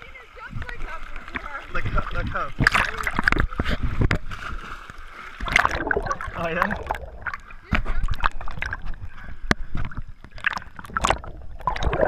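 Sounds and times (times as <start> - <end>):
muffled underwater water rumble: 0.0 - 4.6, 5.4 - 12.0
bubble clicks and pops: 5.4 - 8.8, 9.8 - 12.0.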